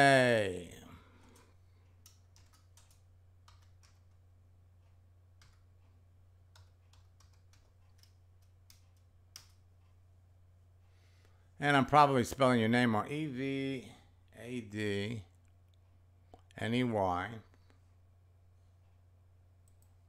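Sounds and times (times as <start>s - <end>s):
computer keyboard typing: 1.2s - 4.2s, 5.3s - 5.8s, 6.5s - 9.7s.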